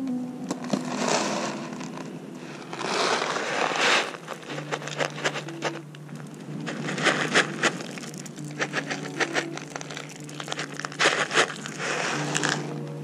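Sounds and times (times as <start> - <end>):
cardboard box rustling: 2.6 - 5.8, 6.7 - 12.7
kibble rattling on concrete: 2.7 - 12.8.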